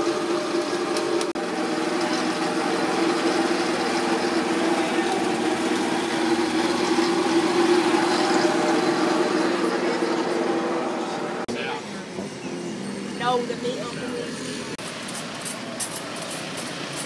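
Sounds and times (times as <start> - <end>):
engine idling: 0.0 - 14.8.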